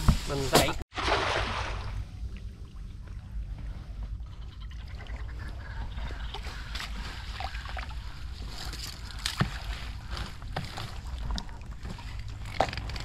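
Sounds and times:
net splashing and dripping water: 0.9 - 2.4.

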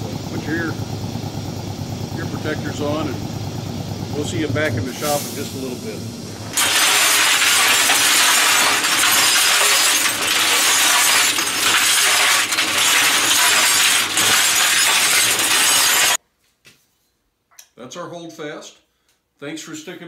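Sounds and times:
metallic clatter in mixer drum: 6.5 - 16.2.

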